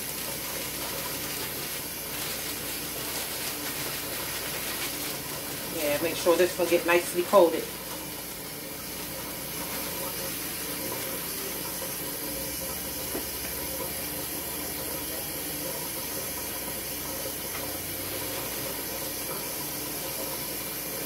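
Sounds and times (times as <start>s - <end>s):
tap running into sink: 8.8s - 20.5s.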